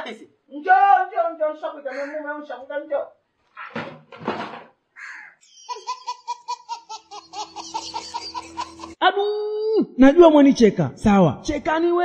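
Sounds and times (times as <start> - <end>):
baby belly-laughing: 5.5 - 9.0.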